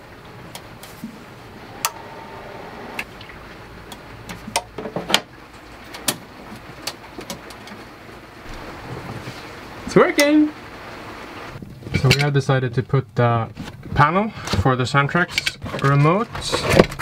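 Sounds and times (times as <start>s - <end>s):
faint steady tone: 1.5s - 3.0s.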